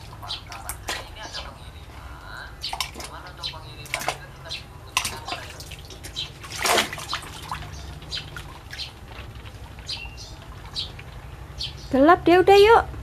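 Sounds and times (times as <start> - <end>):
water splashing in bucket: 2.6 - 11.3.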